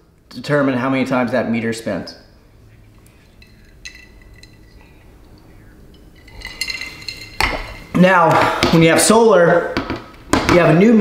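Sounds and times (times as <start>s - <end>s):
drinking glass clinking: 3.0s - 8.0s.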